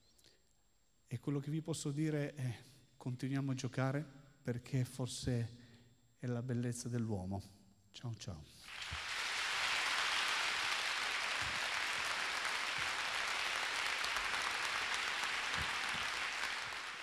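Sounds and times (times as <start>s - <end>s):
audience applauding: 8.7s - 17.0s.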